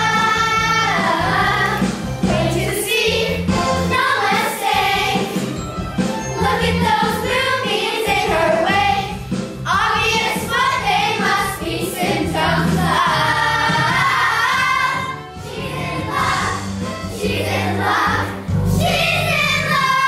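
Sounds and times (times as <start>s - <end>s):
children singing in unison: 0.0s - 5.4s, 9.7s - 20.0s
instrumental accompaniment: 0.0s - 20.0s.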